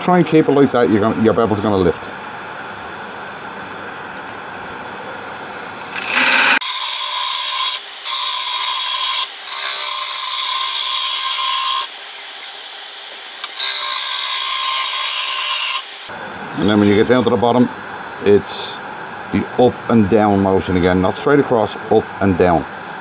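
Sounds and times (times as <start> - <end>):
wood lathe running: 5.8 - 17.0
gouge hissing cutting wood: 5.9 - 17.3.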